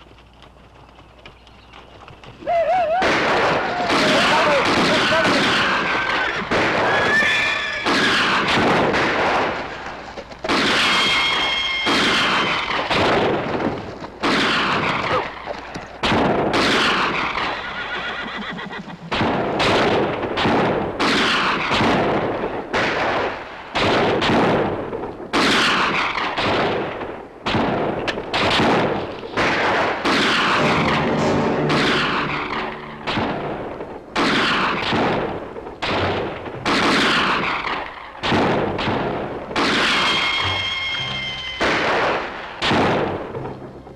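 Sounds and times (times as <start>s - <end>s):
rifle shots echoing: 3.0s - 7.1s, 10.4s - 13.6s, 25.3s - 40.8s
horse whinnying: 5.8s - 8.5s, 10.8s - 12.6s, 17.3s - 19.2s.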